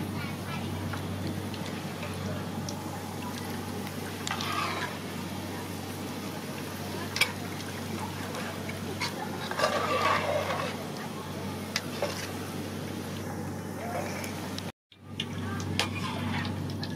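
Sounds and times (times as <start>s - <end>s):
steady low hum: 0.0s - 16.9s
hot oil sizzling in wok: 0.8s - 10.9s.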